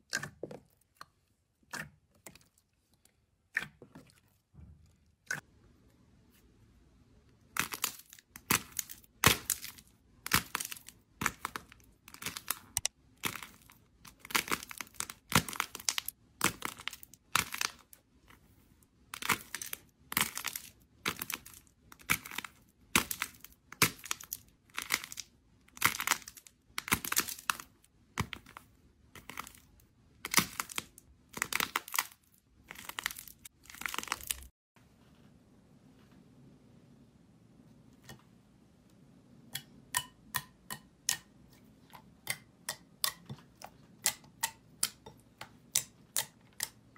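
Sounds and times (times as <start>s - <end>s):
crust crackling and crinkling: 7.5s - 35.1s.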